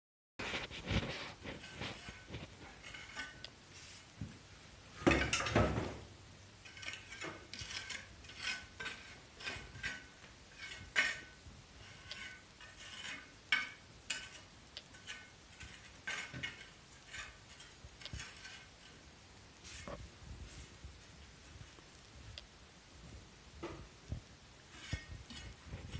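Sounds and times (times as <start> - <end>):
trowel scraping mortar and stone: 0.4 - 4.3, 6.6 - 20.0, 24.7 - 25.9.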